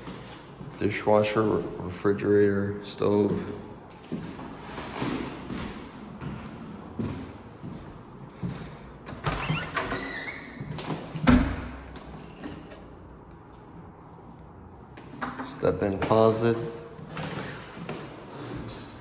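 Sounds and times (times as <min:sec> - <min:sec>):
footsteps on hardwood floors: 0:03.2 - 0:08.8.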